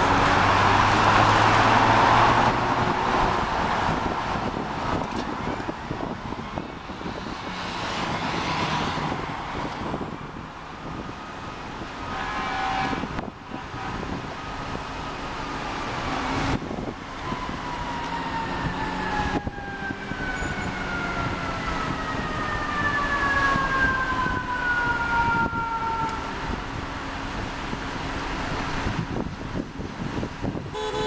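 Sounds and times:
idling traffic hum: 9.0s - 31.0s
truck air horn: 12.1s - 14.1s, 30.7s - 31.0s
fire truck siren winding down: 17.0s - 26.6s.

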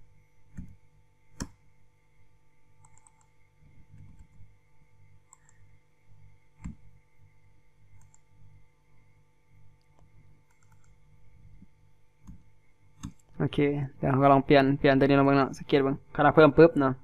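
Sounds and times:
low steady hum: 0.0s - 17.0s
keyboard and mouse clicks: 0.5s - 0.8s, 1.4s - 1.6s, 2.8s - 4.4s, 5.3s - 5.6s, 6.6s - 6.8s, 8.0s - 8.3s, 9.8s - 11.0s, 13.0s - 13.4s.

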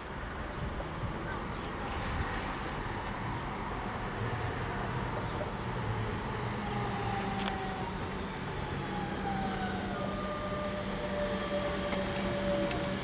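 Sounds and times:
train traction motors whining: 6.6s - 13.0s.

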